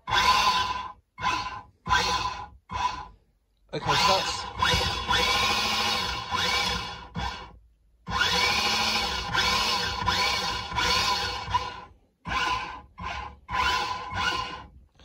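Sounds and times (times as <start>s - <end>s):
electric motor whine: 3.8s - 7.5s.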